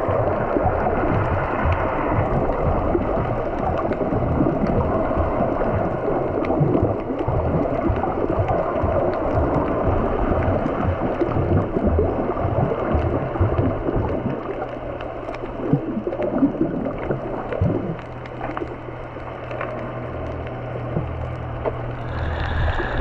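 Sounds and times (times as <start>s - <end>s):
steady low hum: 0.0s - 23.0s
water sloshing and gurgling: 0.0s - 23.0s
faint clicks: 14.4s - 16.4s, 17.0s - 23.0s.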